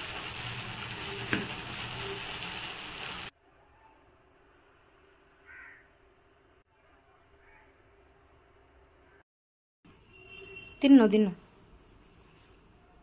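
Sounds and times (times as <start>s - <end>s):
sizzling hiss: 0.0s - 3.3s.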